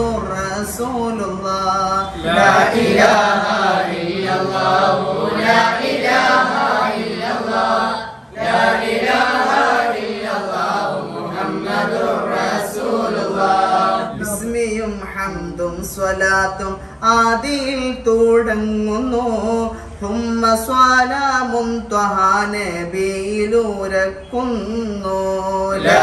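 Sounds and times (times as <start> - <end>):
men chanting together: 1.8 - 14.6, 25.7 - 26.0.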